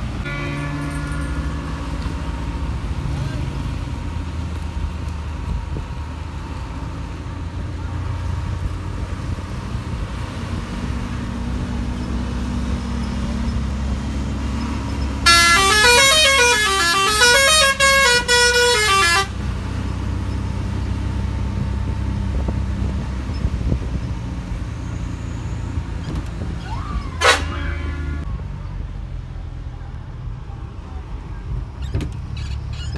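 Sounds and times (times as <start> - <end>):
bus engine droning: 0.0 - 32.9
musical horn playing tune: 15.2 - 19.4, 27.1 - 28.3.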